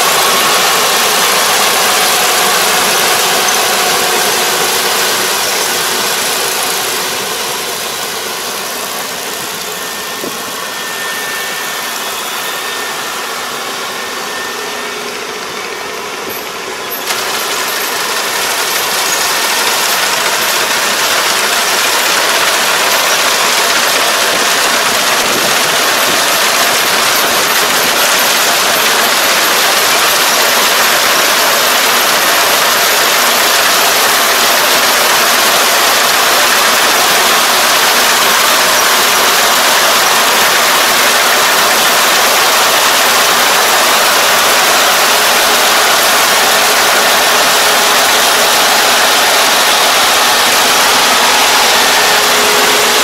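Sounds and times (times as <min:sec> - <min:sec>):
combine harvester running: 0:00.0 - 0:53.0.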